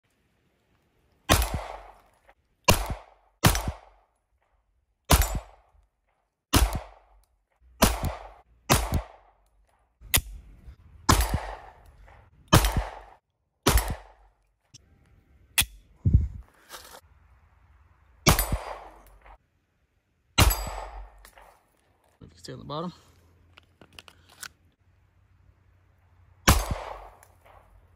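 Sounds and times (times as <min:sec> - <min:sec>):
pistol shots with echo: 0:01.3 - 0:02.0, 0:02.7 - 0:04.0, 0:05.1 - 0:05.7, 0:06.5 - 0:07.2, 0:07.8 - 0:09.4, 0:11.1 - 0:11.8, 0:12.5 - 0:14.3, 0:18.2 - 0:19.3, 0:20.4 - 0:21.4, 0:26.5 - 0:27.7.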